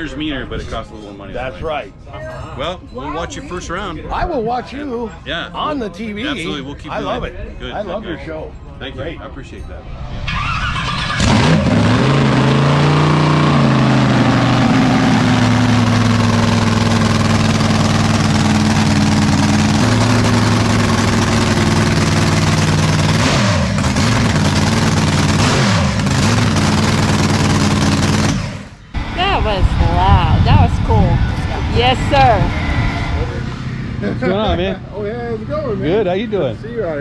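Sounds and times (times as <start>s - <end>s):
boat engine starting and revving: 10.3s - 36.6s.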